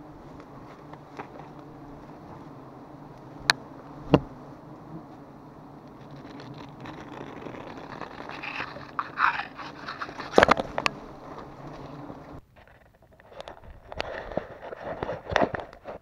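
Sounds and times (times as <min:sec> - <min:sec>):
bees humming: 0:00.0 - 0:12.4
knife crunching through honeycomb: 0:05.9 - 0:10.8.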